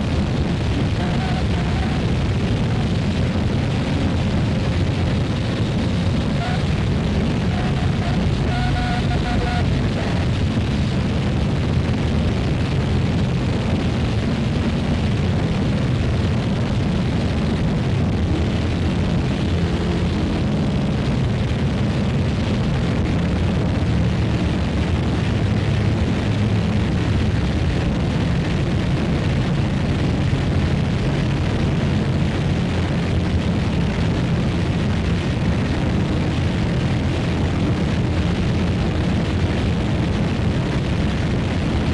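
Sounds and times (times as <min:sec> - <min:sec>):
electronic drone music: 0:00.0 - 0:04.3, 0:05.8 - 0:10.9.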